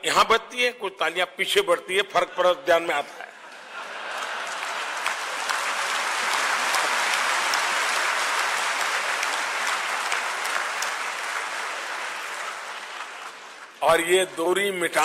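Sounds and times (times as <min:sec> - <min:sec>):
audience applauding: 0:03.5 - 0:14.4.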